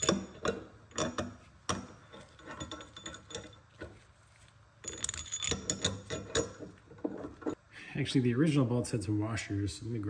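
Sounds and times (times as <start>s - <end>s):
steel parts clinking and rattling: 0.0s - 4.0s, 4.8s - 7.6s
rapid metallic clicks and chinks: 4.8s - 7.5s.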